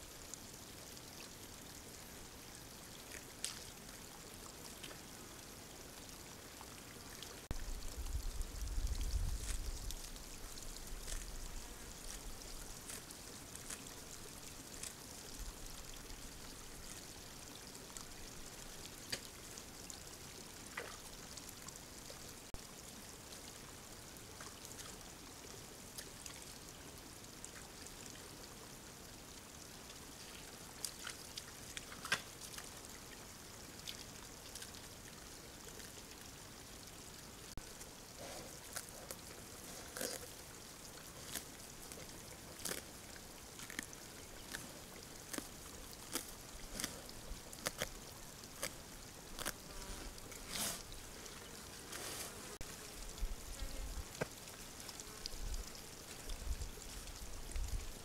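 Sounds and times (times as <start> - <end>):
steady hiss: 35.3 - 58.0.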